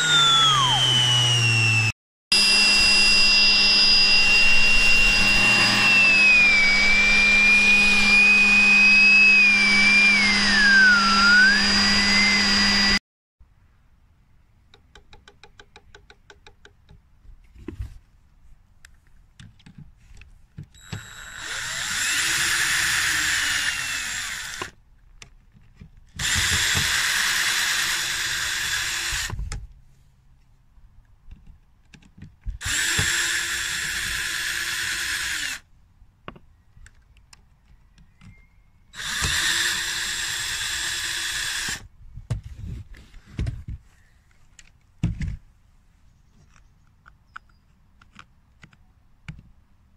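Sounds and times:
electric screwdriver running: 0:00.0 - 0:13.0, 0:20.8 - 0:24.7, 0:26.2 - 0:29.4, 0:32.6 - 0:35.6, 0:39.0 - 0:41.8.

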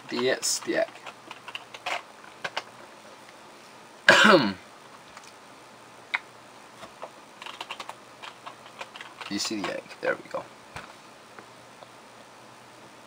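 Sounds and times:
man coughing: 0:04.1 - 0:04.6.

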